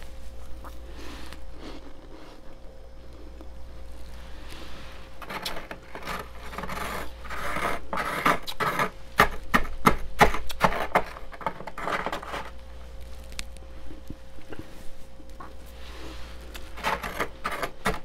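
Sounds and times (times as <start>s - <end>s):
metal spoon scraping frost: 4.2s - 12.6s, 15.5s - 18.0s.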